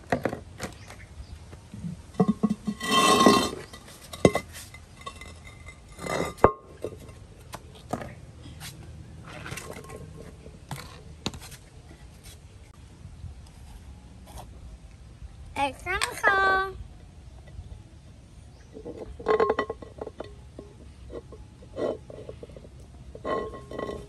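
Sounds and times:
short scraping clatters: 2.2 - 7.2.

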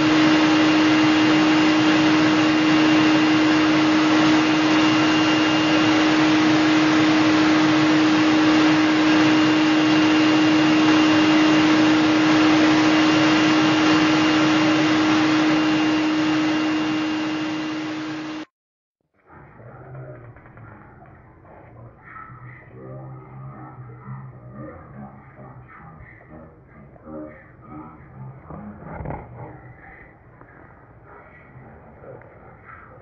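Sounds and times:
vacuum cleaner running: 0.0 - 18.5.

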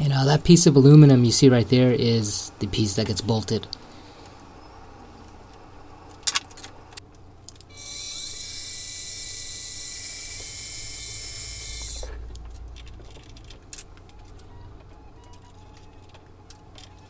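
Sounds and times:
milling machine drilling aluminum: 7.8 - 12.1.

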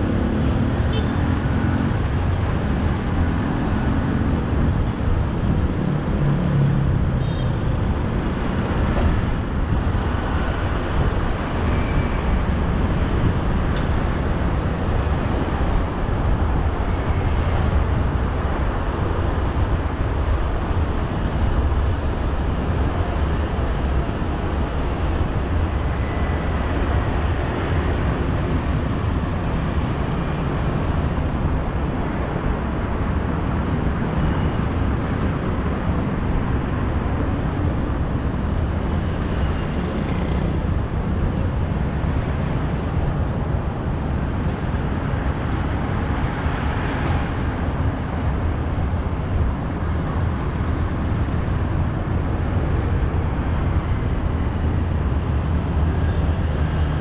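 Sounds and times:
road traffic rumble: 0.0 - 57.0
road hiss: 12.6 - 55.9.

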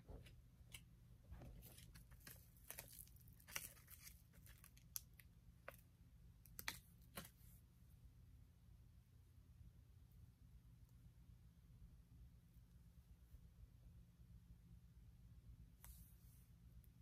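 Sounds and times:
thin plastic crinkling: 1.4 - 5.8.

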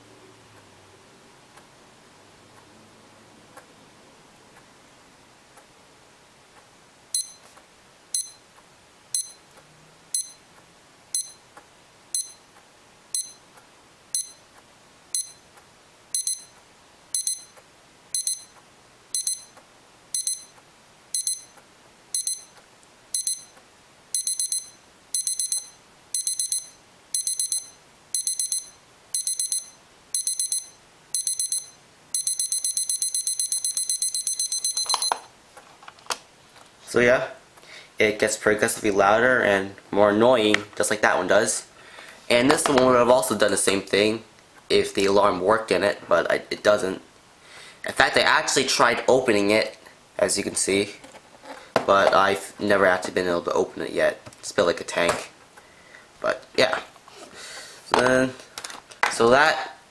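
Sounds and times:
digital alarm clock beeping: 7.1 - 7.4, 8.1 - 8.4, 9.1 - 9.4, 10.1 - 10.4, 11.1 - 11.4, 12.1 - 12.4, 13.1 - 13.4, 14.1 - 14.4, 15.1 - 15.4, 16.1 - 35.2.

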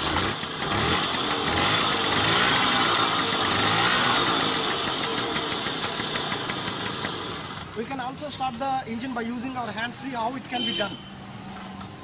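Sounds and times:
scooter engine revving and idling: 0.0 - 8.4.

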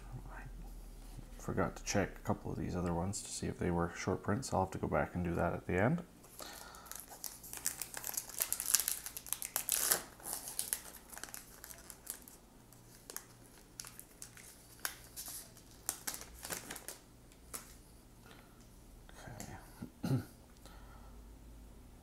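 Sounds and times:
wrapper crinkling: 6.5 - 17.8.

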